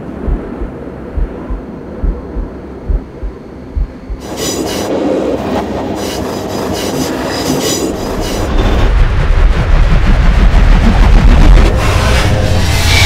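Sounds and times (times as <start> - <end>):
metro train rushing past: 0.0 - 13.0
high-pitched train squealing: 4.2 - 9.0, 11.6 - 13.0.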